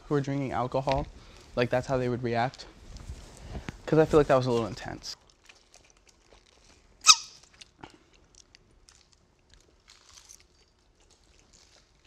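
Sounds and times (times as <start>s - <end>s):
plastic bottle spout squeak: 7.0s - 7.4s.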